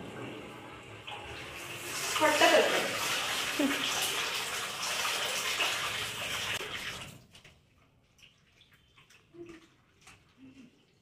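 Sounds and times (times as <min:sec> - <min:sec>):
water running from a tap: 0:00.0 - 0:11.0.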